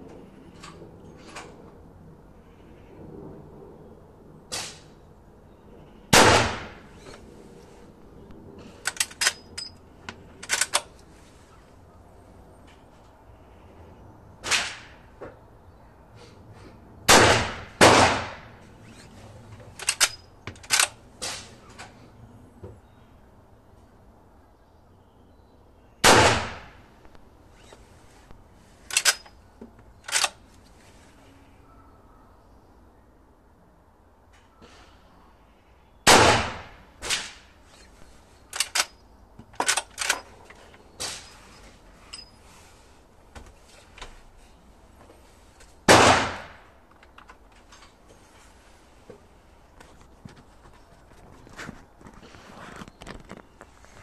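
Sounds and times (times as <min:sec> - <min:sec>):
rifle shot: 0:04.5 - 0:04.9, 0:06.1 - 0:07.0, 0:14.4 - 0:15.0, 0:17.1 - 0:18.6, 0:26.0 - 0:26.8, 0:36.1 - 0:37.5, 0:45.9 - 0:46.7
rifle lever metallic clatter: 0:08.8 - 0:09.8, 0:10.4 - 0:11.0, 0:19.7 - 0:21.5, 0:28.9 - 0:29.4, 0:30.0 - 0:30.4, 0:38.5 - 0:39.0, 0:39.6 - 0:40.3
rifle lever action clicking: 0:10.4 - 0:10.9, 0:28.9 - 0:29.3, 0:30.1 - 0:30.4, 0:38.5 - 0:38.9.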